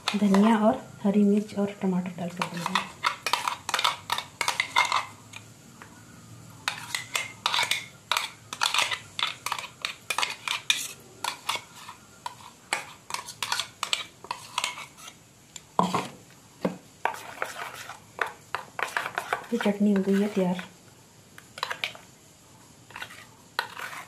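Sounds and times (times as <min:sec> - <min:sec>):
metal spoon scraping steel jar: 0:02.3 - 0:05.1, 0:06.7 - 0:15.2, 0:18.8 - 0:20.7, 0:22.9 - 0:24.0.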